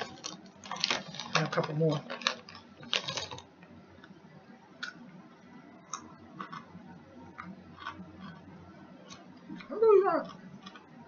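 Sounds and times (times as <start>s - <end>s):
chips crunching as chewed: 0.0s - 3.5s
potato chips crackling: 0.0s - 3.5s.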